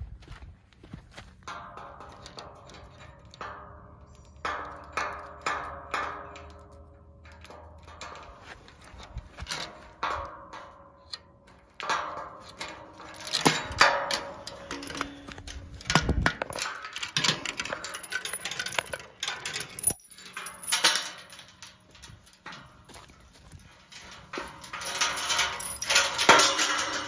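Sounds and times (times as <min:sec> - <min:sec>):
chain and padlock clinking: 0:16.4 - 0:22.1, 0:24.3 - 0:27.0.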